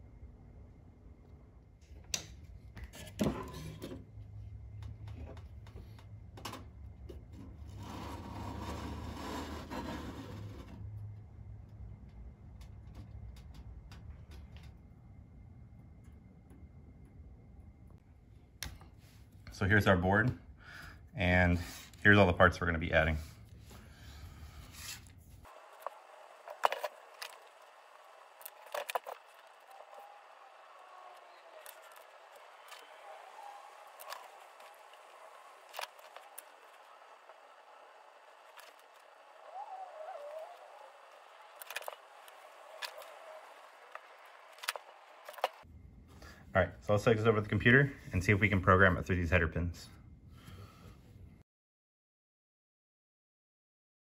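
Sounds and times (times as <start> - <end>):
wire rack scraping metal: 7.5 - 10.9.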